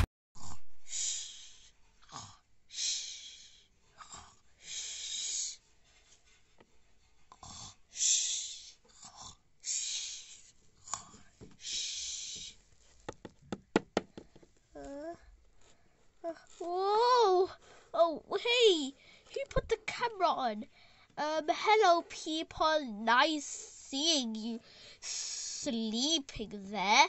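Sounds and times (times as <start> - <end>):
person snoring: 0.4 - 2.4, 7.4 - 7.8.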